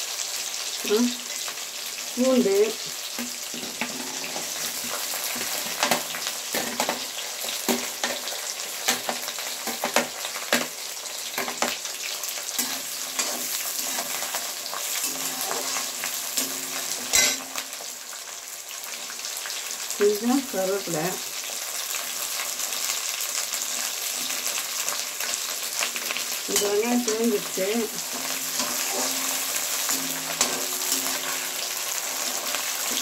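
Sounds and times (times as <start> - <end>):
shallots and garlic sizzling in oil: 0.0 - 33.0
utensil scraping and knocking pan: 28.1 - 33.0.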